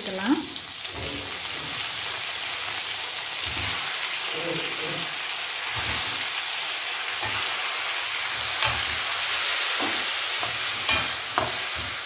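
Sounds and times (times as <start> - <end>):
vegetables sizzling in hot oil: 0.0 - 12.0
spoon scraping a pan: 5.7 - 6.4, 7.1 - 12.0.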